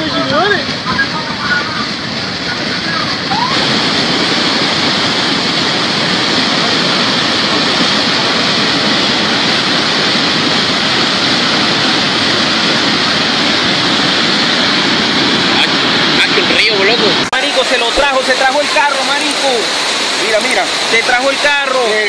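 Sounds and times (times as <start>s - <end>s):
rushing flood water: 0.0s - 22.0s.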